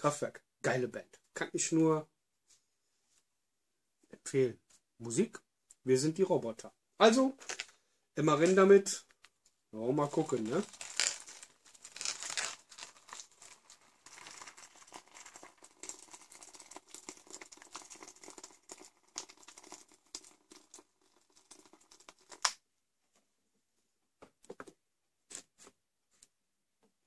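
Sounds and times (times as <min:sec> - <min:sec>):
plastic pouch crinkling: 0:07.3 - 0:07.8, 0:10.0 - 0:18.4
water trickling into pouch: 0:07.3 - 0:07.8, 0:10.0 - 0:22.6.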